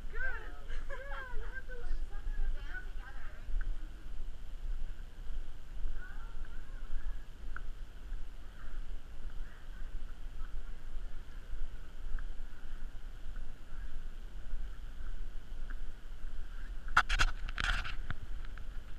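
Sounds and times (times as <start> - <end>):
low rumble of wind and movement: 0.0 - 18.9
sharp clattering and rustling: 16.9 - 18.9.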